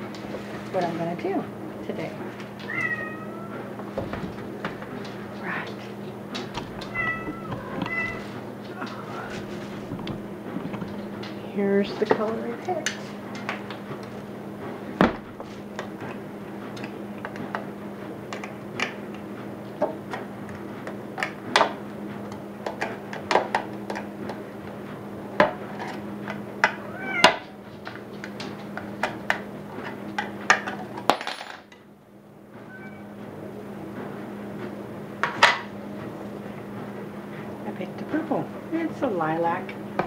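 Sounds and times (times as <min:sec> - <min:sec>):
steady low hum: 0:00.0 - 0:31.0, 0:31.6 - 0:40.0.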